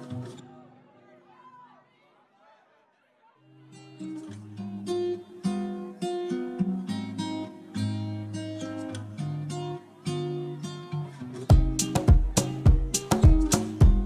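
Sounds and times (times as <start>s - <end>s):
acoustic guitar picking melody: 0.0s - 0.6s, 3.6s - 14.0s.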